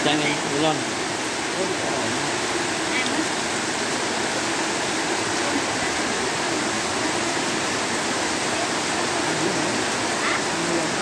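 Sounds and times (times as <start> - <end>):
torrential rain: 0.0 - 11.0.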